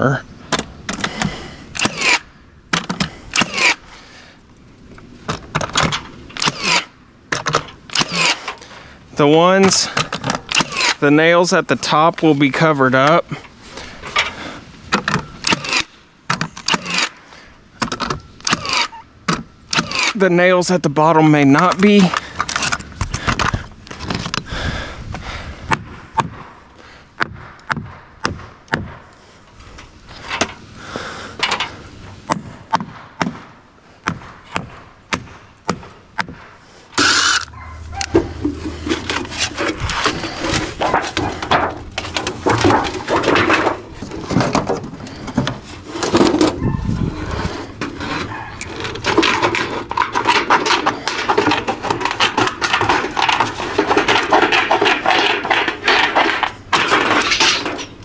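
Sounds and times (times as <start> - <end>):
nail gun firing into wood: 0.5 - 3.8, 5.6 - 8.4, 9.9 - 11.0, 15.0 - 17.1, 17.8 - 20.2
metal sheet scraping and crinkling: 37.0 - 58.0.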